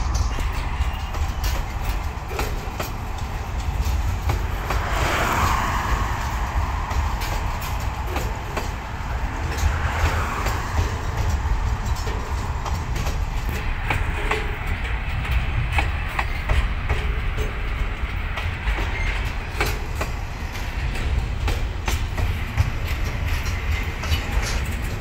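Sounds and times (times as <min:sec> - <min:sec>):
rushing hiss: 0:00.0 - 0:14.0
freight train rumbling past: 0:00.0 - 0:25.0
wheels clacking over rail joints: 0:00.0 - 0:25.0.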